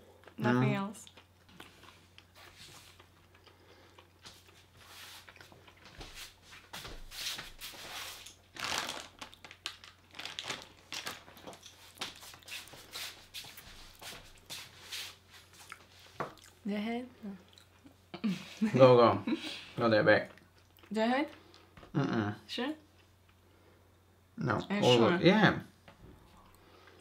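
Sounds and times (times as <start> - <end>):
plastic bag crinkling: 8.4 - 12.4.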